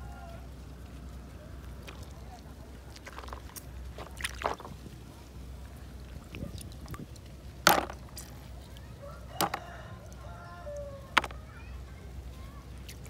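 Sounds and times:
low steady rumble: 0.0s - 13.0s
snails clacking into plastic basin: 3.0s - 4.8s, 7.6s - 8.3s, 9.4s - 9.7s, 11.1s - 11.5s.

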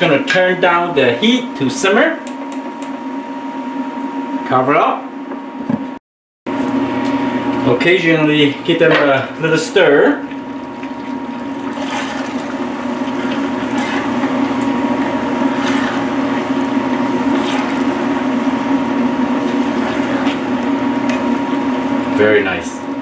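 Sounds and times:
induction cooktop humming: 0.0s - 23.0s
wooden spatula scraping: 13.0s - 18.3s.

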